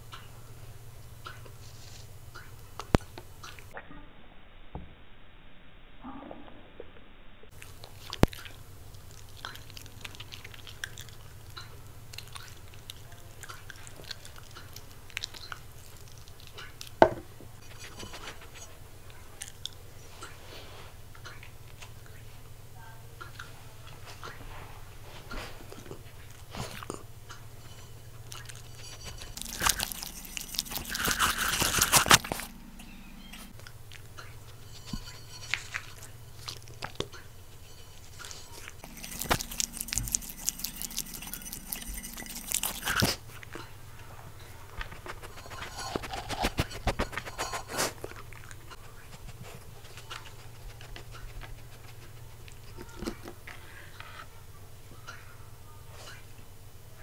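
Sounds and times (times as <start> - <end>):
dog crunching and chewing food: 7.5 - 20.0, 25.2 - 54.0.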